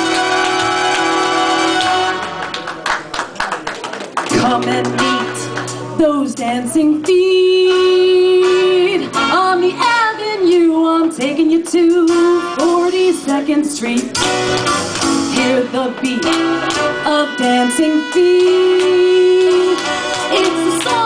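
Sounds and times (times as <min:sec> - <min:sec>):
backing music: 0:00.0 - 0:02.6, 0:04.2 - 0:21.0
woman singing into microphone: 0:04.3 - 0:14.2, 0:15.3 - 0:21.0.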